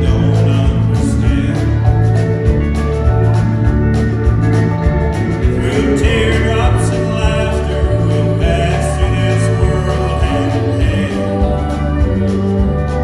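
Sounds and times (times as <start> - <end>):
voices singing: 0.0 - 1.8, 5.4 - 13.0
live country band playing: 0.0 - 13.0.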